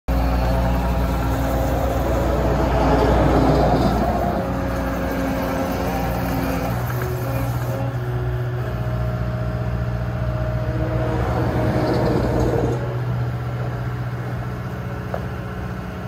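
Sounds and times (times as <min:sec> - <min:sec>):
track loader diesel engine running: 0:00.1 - 0:16.0.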